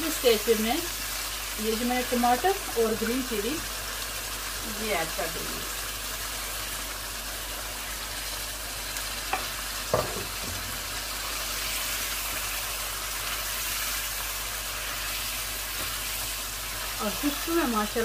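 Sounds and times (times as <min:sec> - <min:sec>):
curry sizzling in a frying pan: 0:00.0 - 0:18.0.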